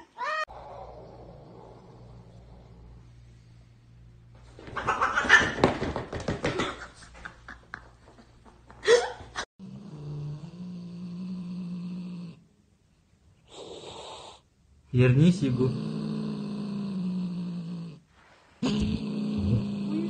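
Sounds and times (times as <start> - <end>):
steady low hum: 0.5 - 4.6
cats scuffling: 4.4 - 8.7.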